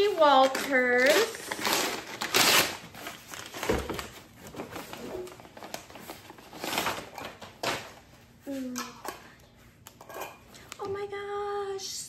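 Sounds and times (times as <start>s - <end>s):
paper mailer rustling and crinkling: 0.0s - 8.1s.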